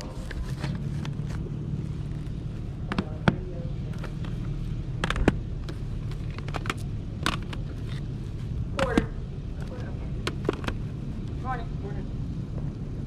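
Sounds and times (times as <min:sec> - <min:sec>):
plastic cd cases clacking: 0:02.1 - 0:08.1, 0:10.2 - 0:10.8.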